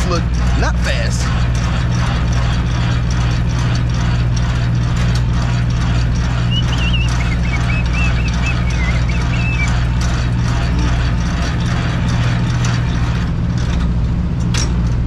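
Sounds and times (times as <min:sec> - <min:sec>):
diesel truck engine running: 0:00.0 - 0:15.0
high warbling chirp: 0:06.4 - 0:10.0.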